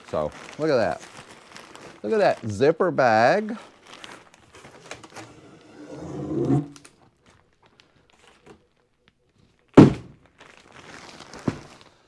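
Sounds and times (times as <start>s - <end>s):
plastic package handling noise: 0.0s - 6.0s, 6.7s - 12.0s
package thumping on table: 9.8s - 10.2s.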